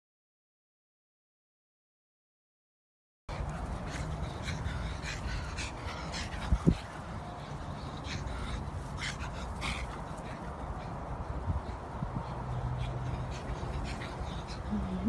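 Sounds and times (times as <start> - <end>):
dogs yapping: 3.3 - 14.8.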